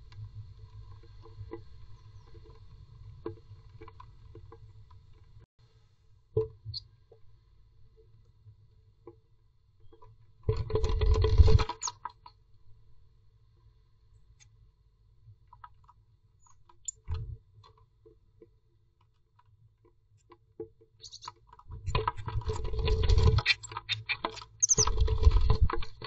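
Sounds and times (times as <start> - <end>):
bird tapping and scratching: 20.2 - 26.0.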